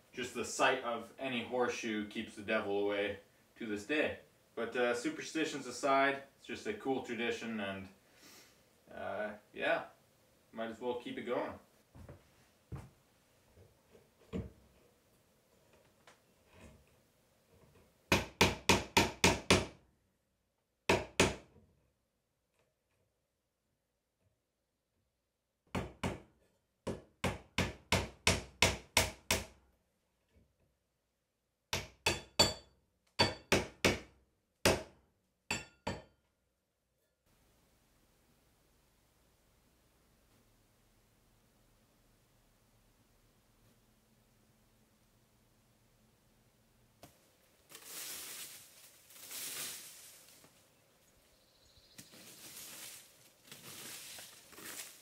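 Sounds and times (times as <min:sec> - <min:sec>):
rustling scuffing noise: 0:11.8 - 0:13.0, 0:47.6 - 0:50.8, 0:51.9 - 0:55.0
hammer nailing into wood: 0:18.1 - 0:19.8, 0:20.9 - 0:21.5, 0:25.7 - 0:26.3, 0:26.9 - 0:29.6, 0:31.7 - 0:36.1.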